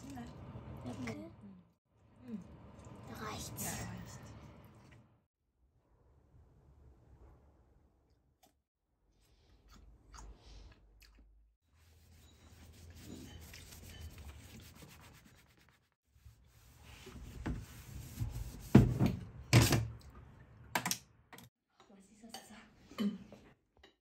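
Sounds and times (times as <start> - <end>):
rubbing and scraping handling noise: 11.9 - 19.2.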